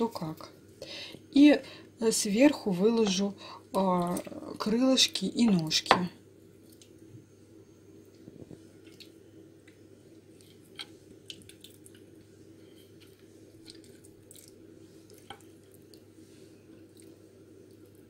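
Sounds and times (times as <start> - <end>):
steady low hum: 0.0 - 18.0
wet squishes of raw chicken: 13.6 - 16.0.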